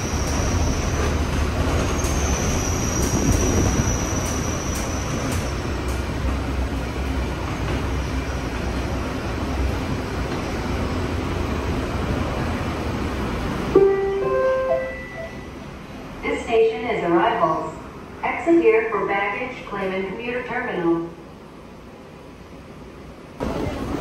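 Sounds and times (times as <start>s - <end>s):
tram rumbling and rolling: 0.0s - 24.0s
chime tone: 14.6s - 15.6s.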